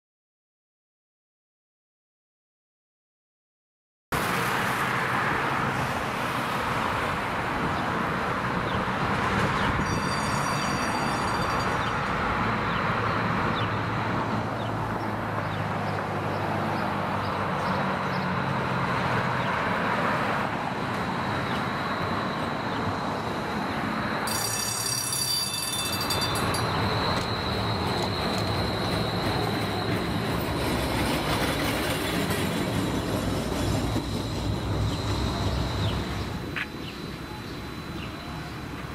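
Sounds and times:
city traffic noise: 4.1s - 38.9s
streetcar passing on tracks: 4.2s - 38.9s
high-pitched rail squeal: 9.6s - 12.1s, 21.1s - 36.4s
high ringing squeals: 9.8s - 12.0s, 21.3s - 30.2s.

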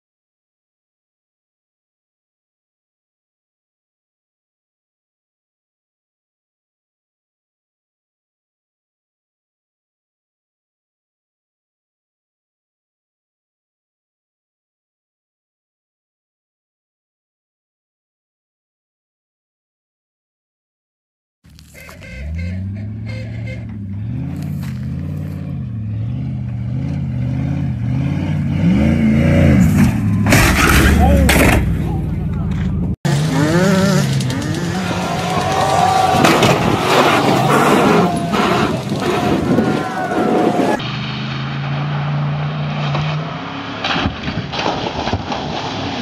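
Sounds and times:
truck engine revving: 21.5s - 46.0s
truck landing from a jump: 29.5s - 46.0s.

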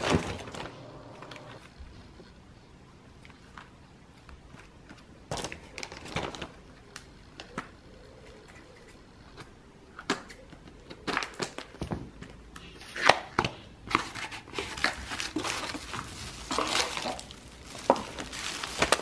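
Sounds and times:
plastic packaging crinkling: 0.0s - 1.6s, 5.3s - 7.5s, 12.8s - 19.0s.

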